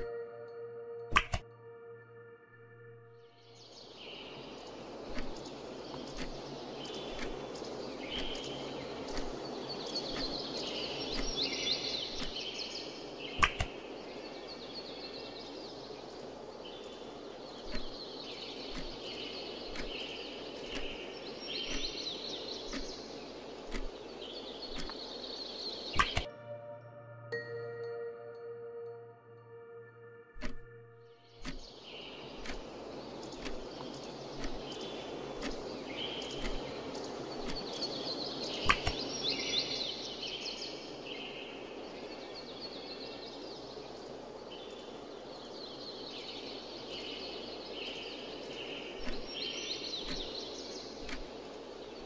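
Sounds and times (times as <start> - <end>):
birds chirping: 0.0 - 52.0
steady outdoor hiss: 0.0 - 52.0
sharp click: 1.1 - 1.4, 13.4 - 13.7, 26.0 - 26.3, 30.4 - 30.7, 38.6 - 39.0
soft ticks: 5.1 - 12.4, 17.6 - 18.0, 18.7 - 25.1, 31.4 - 31.7, 32.4 - 37.8, 49.0 - 50.4, 51.0 - 51.4.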